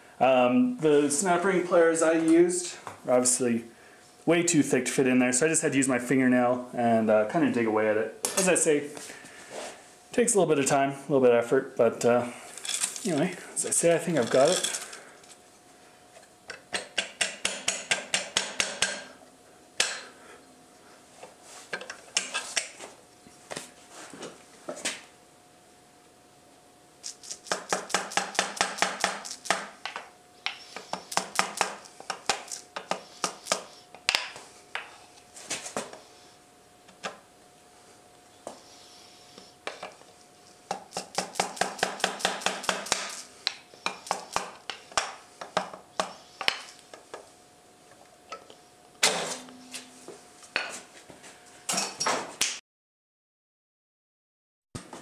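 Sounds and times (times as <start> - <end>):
wooden hammer tapping metal: 16.8 - 19.1.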